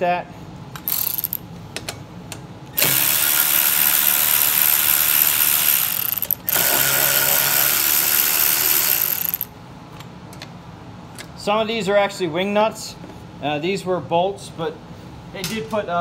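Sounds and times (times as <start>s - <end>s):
electric ratchet running: 0.8s - 1.4s, 2.8s - 9.5s.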